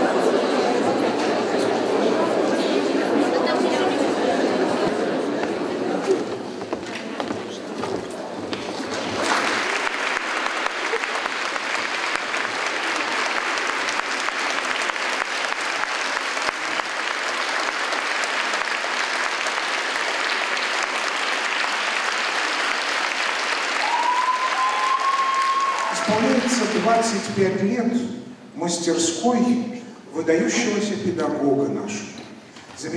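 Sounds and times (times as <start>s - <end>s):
audience applauding: 8.6s - 27.4s.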